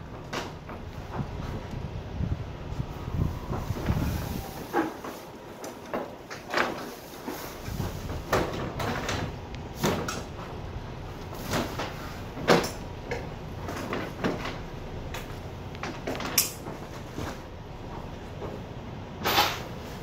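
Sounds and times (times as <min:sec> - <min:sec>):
tarp rustling and scraping: 0:02.8 - 0:12.6.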